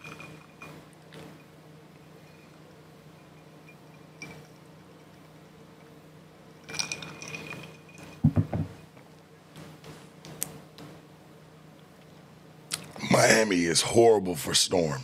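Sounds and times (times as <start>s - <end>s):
glass clinking and ringing: 6.7s - 8.7s
glass set down with knocks: 8.2s - 8.8s.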